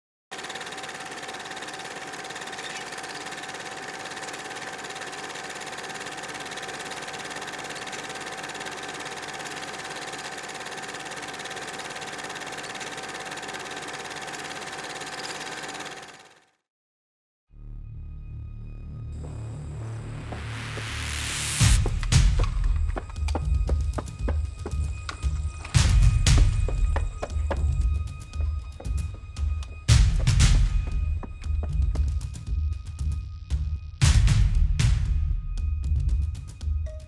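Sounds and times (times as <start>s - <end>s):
film projector whirring and clattering: 0.3s - 16.6s, 21.6s - 31.3s.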